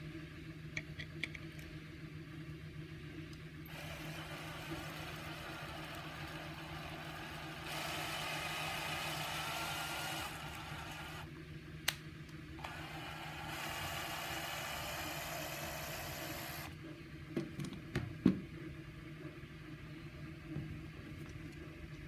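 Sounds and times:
cordless drill motor whining: 3.7s - 11.3s, 12.6s - 16.8s.

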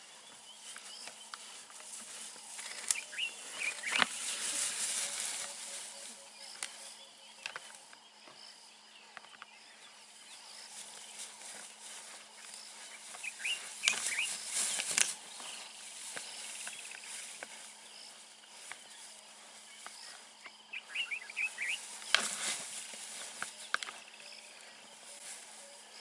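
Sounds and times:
rustling and scuffling in grass: 0.0s - 26.0s
short bird chirps: 20.7s - 21.8s.

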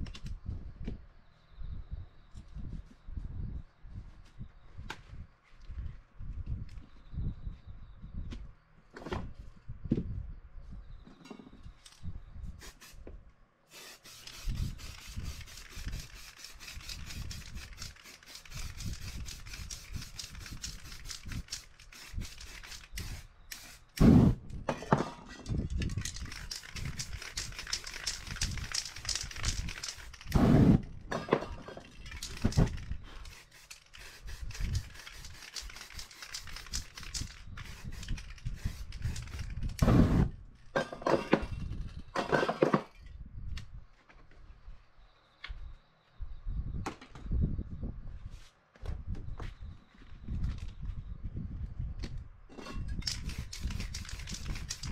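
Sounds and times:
spray-paint can hissing: 12.6s - 13.0s, 13.7s - 24.2s, 32.1s - 39.5s, 53.1s - 54.9s.

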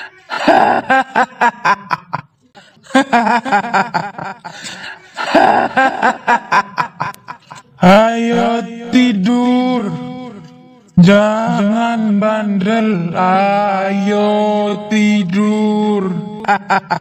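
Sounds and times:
woman cackling laugh: 0.3s - 2.3s, 2.9s - 7.6s.

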